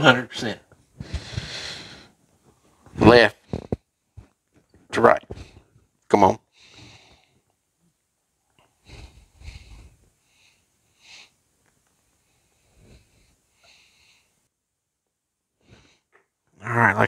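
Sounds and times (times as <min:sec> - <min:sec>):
man breathing through nose: 0:01.0 - 0:02.2, 0:06.5 - 0:07.5, 0:08.6 - 0:11.4, 0:12.2 - 0:14.5.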